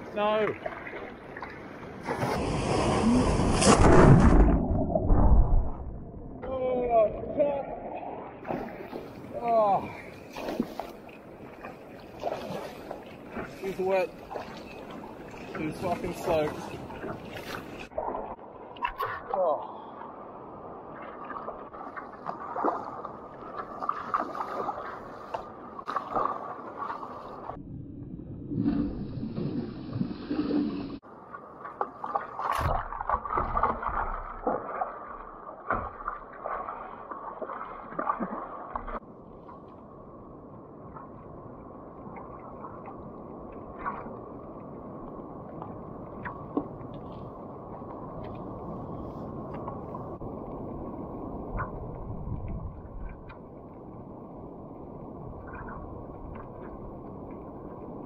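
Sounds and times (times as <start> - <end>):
paddle strokes splashing: 0.0 - 4.4, 7.6 - 19.2, 20.8 - 27.6, 28.6 - 39.7
water splashing against kayak hull: 0.0 - 20.1, 20.7 - 27.6, 28.5 - 39.9, 40.8 - 53.6.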